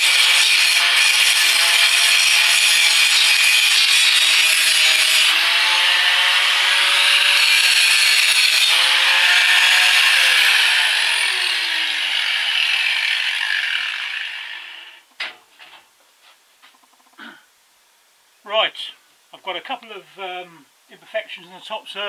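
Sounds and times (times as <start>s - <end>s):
angle grinder grinding steel: 0.0s - 15.0s.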